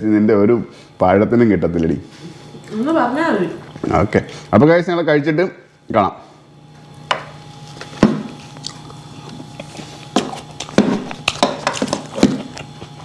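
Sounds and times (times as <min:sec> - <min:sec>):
mouth and handling noises: 0:06.8 - 0:13.0.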